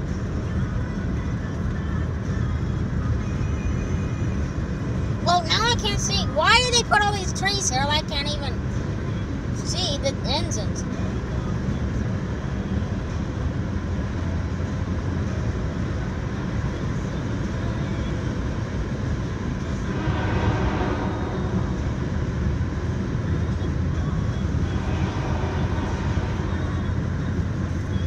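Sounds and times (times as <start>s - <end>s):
car interior rumble: 0.0s - 28.0s
rushing noise: 19.5s - 23.6s, 24.4s - 28.0s.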